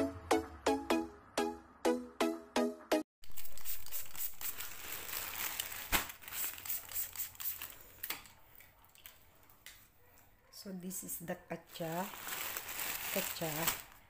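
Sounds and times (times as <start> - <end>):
plastic mailer pouch crinkling: 3.3 - 7.9, 11.7 - 14.0.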